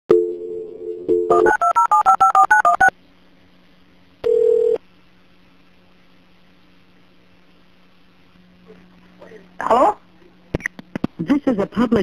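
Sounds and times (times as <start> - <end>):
telephone dial tone: 4.2 - 4.8.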